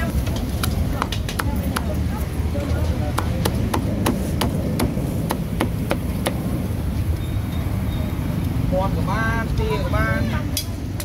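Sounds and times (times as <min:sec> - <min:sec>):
low background rumble: 0:00.1 - 0:07.1
cleaver chopping on wooden block: 0:03.1 - 0:06.5.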